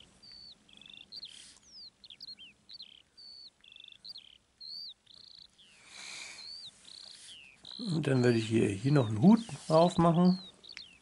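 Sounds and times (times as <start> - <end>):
songbird chirping and trilling: 0.0 - 11.0
scratchy hiss: 1.2 - 1.8, 5.2 - 11.0.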